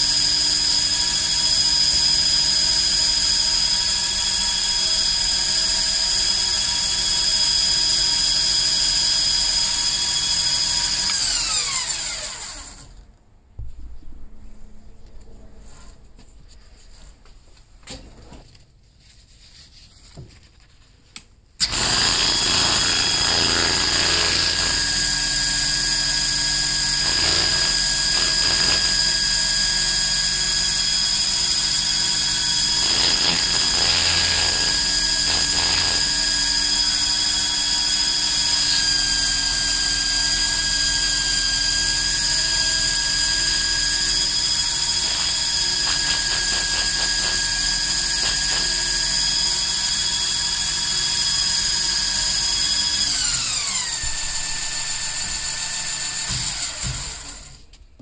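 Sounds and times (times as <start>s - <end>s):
lathe motor whining: 21.6s - 41.4s, 42.0s - 57.6s.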